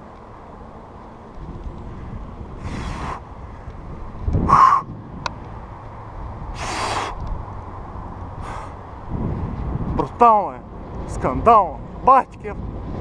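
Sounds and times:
wind rumble on microphone: 0:00.0 - 0:13.0
person breathing hard: 0:04.5 - 0:04.9, 0:06.5 - 0:07.2, 0:08.4 - 0:08.8.

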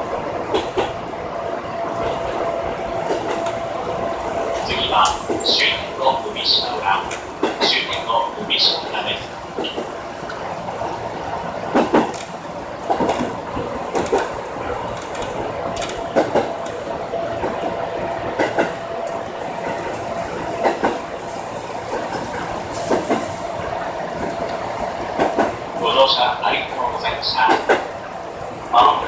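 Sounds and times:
train wheels clacking over rail joints: 0:00.0 - 0:01.0, 0:07.0 - 0:08.1, 0:11.7 - 0:25.6, 0:27.4 - 0:27.9
train running hum: 0:00.0 - 0:29.0.

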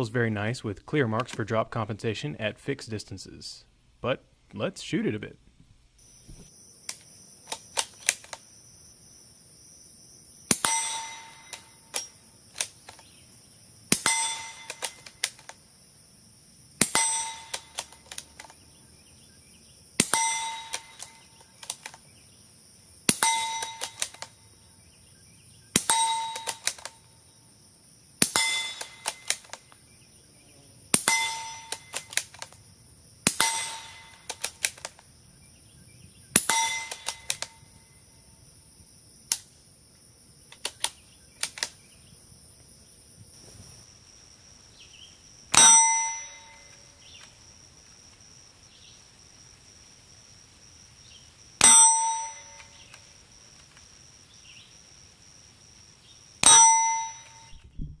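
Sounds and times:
quiet rifle shots: 0:06.2 - 0:08.5, 0:13.9 - 0:15.6, 0:16.8 - 0:18.6, 0:23.1 - 0:24.4, 0:25.7 - 0:27.0, 0:28.2 - 0:29.8, 0:30.9 - 0:32.6, 0:33.2 - 0:35.0, 0:36.3 - 0:37.7, 0:57.2 - 0:58.0
rifle bolt clicks: 0:06.9 - 0:08.4, 0:23.6 - 0:24.3, 0:25.8 - 0:26.9, 0:28.7 - 0:29.6, 0:31.7 - 0:32.6, 0:33.3 - 0:35.0, 0:36.5 - 0:37.5, 0:40.5 - 0:41.8
steel plate ringing: 0:10.6 - 0:11.7, 0:14.0 - 0:15.0, 0:16.8 - 0:17.8, 0:20.0 - 0:21.2, 0:23.2 - 0:24.0, 0:25.9 - 0:26.6, 0:28.4 - 0:29.0, 0:31.1 - 0:31.9, 0:33.4 - 0:34.3, 0:36.4 - 0:37.3, 0:45.6 - 0:46.7, 0:51.6 - 0:52.6, 0:56.4 - 0:57.9.

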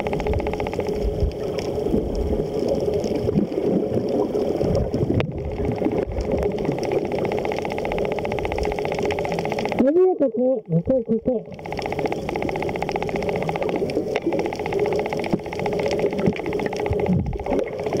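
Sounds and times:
fast even pulsing: 0:00.0 - 0:01.2, 0:05.8 - 0:10.8, 0:11.4 - 0:18.0
steady hum: 0:00.0 - 0:02.7, 0:05.1 - 0:18.0
muffled underwater water rush: 0:00.0 - 0:10.0, 0:11.3 - 0:18.0.

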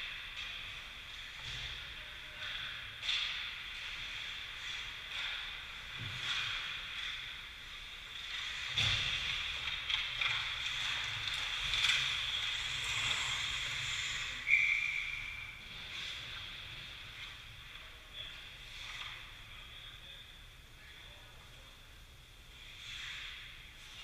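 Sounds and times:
skates scraping ice: 0:03.7 - 0:14.7
referee's whistle blast: 0:14.4 - 0:15.4.

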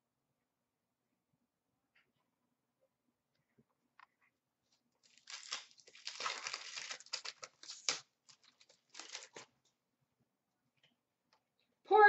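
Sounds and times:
foil wrapper tearing and crinkling: 0:05.0 - 0:09.5.

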